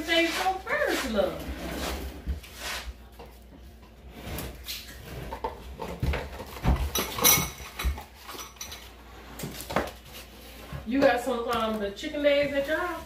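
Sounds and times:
tableware knocks and clinks: 6.5s - 8.9s.

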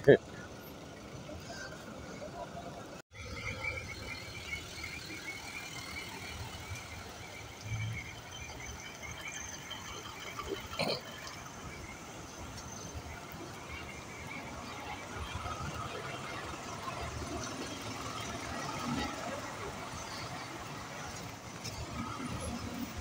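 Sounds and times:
road traffic hum: 0.0s - 23.0s
high warbling chirp: 3.2s - 10.7s.

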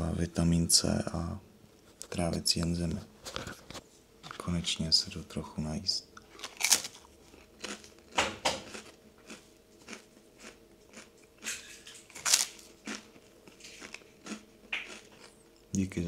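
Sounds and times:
chewing crunches: 6.2s - 15.8s
rice cakes crunching when bitten: 6.2s - 15.8s.

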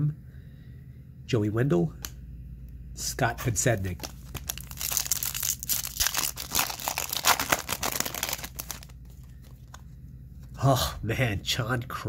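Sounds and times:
foil wrapper crinkling and tearing: 4.0s - 9.8s.

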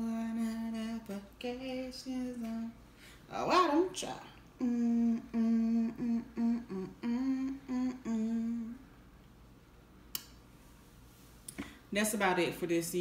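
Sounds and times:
woman humming: 3.3s - 8.9s.

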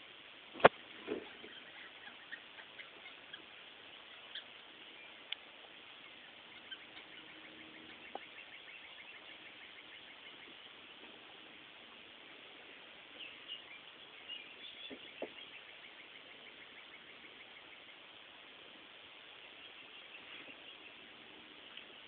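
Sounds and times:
steady hiss: 0.0s - 22.0s
foxes squeaking: 1.2s - 4.6s, 6.1s - 10.5s.

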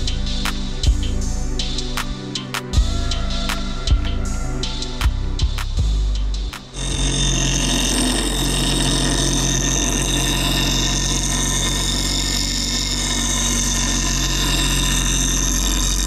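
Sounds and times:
bench grinder motor hum: 6.7s - 16.0s
blade grinding on wheel: 6.7s - 16.0s.

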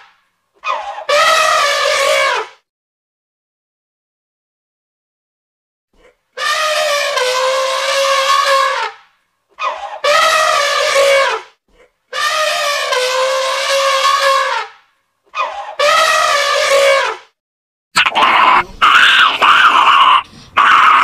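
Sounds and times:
elephant trumpeting: 0.6s - 2.5s, 6.4s - 11.5s, 12.1s - 17.2s.

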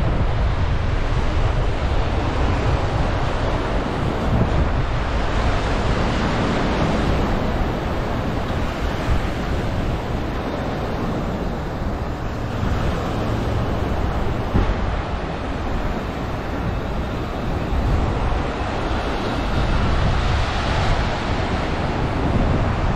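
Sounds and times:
small waves breaking on beach: 0.0s - 22.9s
wind buffeting microphone: 0.0s - 22.9s
low thump: 14.5s - 14.8s.

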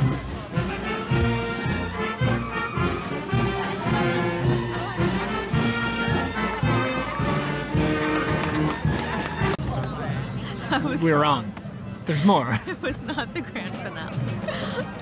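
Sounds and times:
marching brass band playing: 0.0s - 9.6s.

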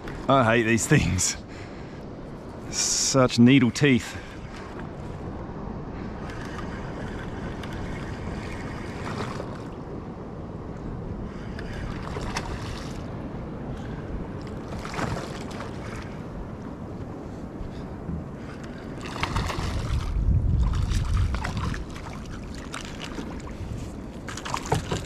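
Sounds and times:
water noise: 0.0s - 25.0s
wind: 0.0s - 25.0s
lure splashing on water: 19.0s - 23.5s.

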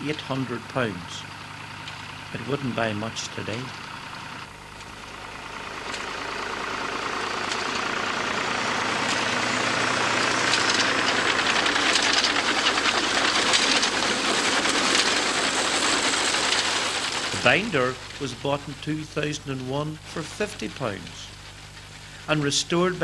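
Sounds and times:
tractor engine running: 0.0s - 23.0s
binder mechanism clattering: 7.4s - 18.2s.

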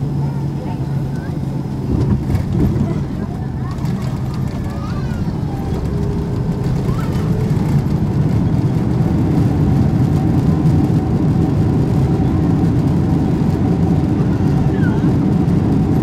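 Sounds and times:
aircraft cabin rumble on landing: 0.0s - 16.0s.

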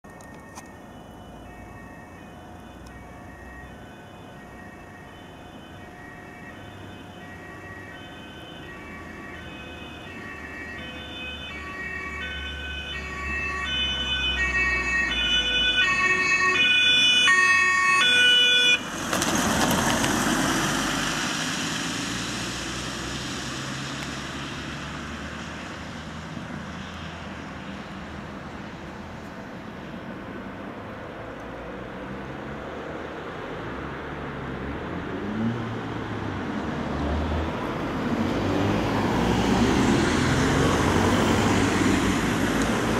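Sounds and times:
two-tone siren: 0.1s - 18.9s
van engine and tyres passing: 0.1s - 42.9s.

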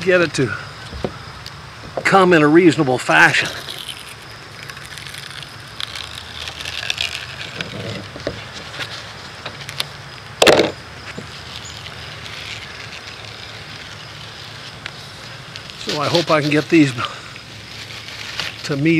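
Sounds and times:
knife scratching under rubber gasket: 3.4s - 9.1s.

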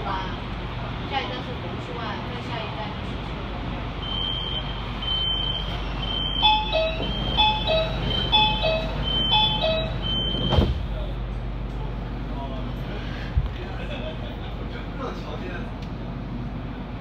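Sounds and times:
train low hum: 0.0s - 17.0s
high door warning beep: 4.0s - 10.7s.

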